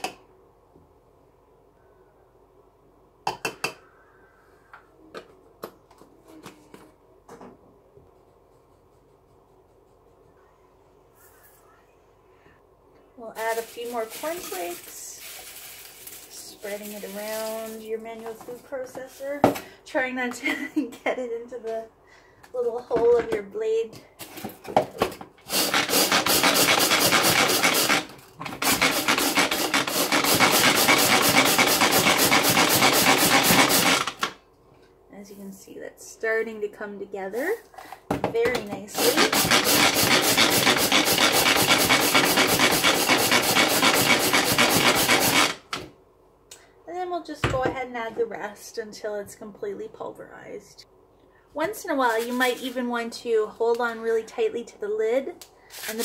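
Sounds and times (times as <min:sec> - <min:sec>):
cornflakes rustling in plastic bowl: 0:13.4 - 0:18.0
pull-cord food processor grinding: 0:25.4 - 0:34.4, 0:38.9 - 0:45.8.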